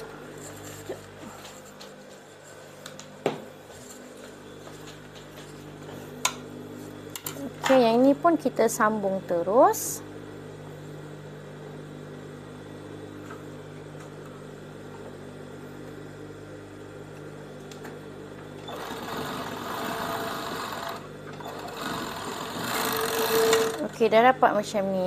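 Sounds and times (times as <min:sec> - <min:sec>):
overlock machine motor hum: 0:00.0 - 0:24.8
overlock machine stitching: 0:18.6 - 0:23.9.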